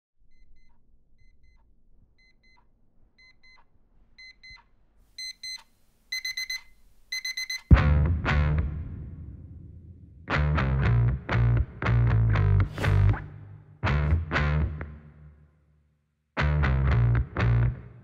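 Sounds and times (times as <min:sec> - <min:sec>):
digital alarm clock beeping: 0:00.3 - 0:01.6, 0:02.2 - 0:04.6, 0:05.2 - 0:07.7
rock music with electric guitar: 0:07.7 - 0:09.2, 0:10.3 - 0:13.2, 0:16.4 - 0:18.0.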